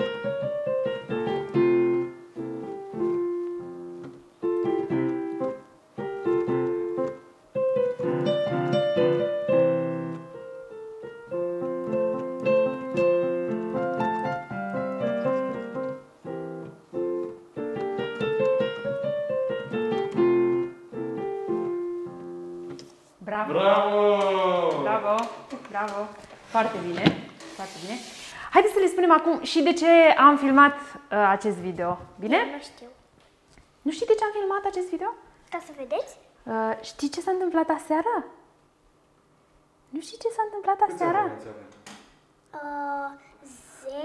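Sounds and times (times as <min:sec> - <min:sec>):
piano melody: 0:00.0 - 0:25.3.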